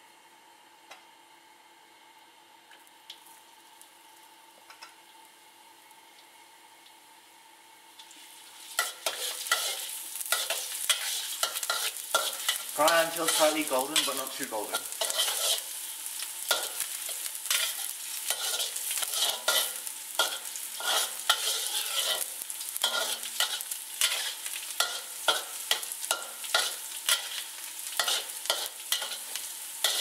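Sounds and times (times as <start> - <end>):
garlic sizzling in oil: 3.0 - 30.0
metal spatula scraping wok: 8.8 - 15.8, 16.4 - 30.0.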